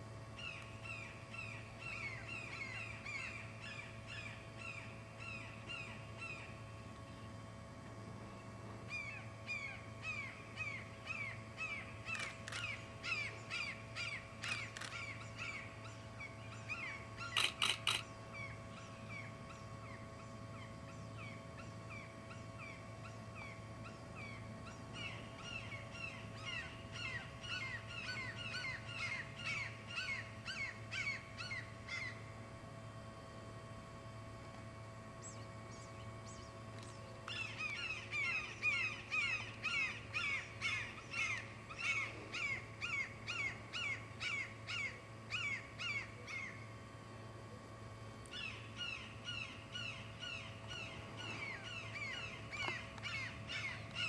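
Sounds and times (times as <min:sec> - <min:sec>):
birds calling: 0:08.9 - 0:32.2, 0:35.2 - 0:46.6, 0:48.3 - 0:54.0.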